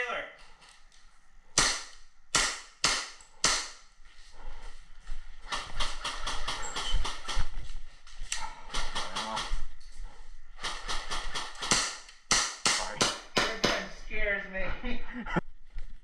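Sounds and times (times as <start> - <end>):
airsoft gun shots: 1.6 - 3.8, 11.1 - 13.8
footsteps: 3.2 - 11.5.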